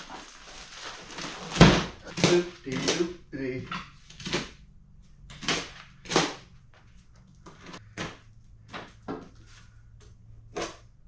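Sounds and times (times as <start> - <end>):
cardboard slapping and cracking: 0.0 - 3.2, 5.3 - 6.5
cardboard rustling: 0.0 - 9.8.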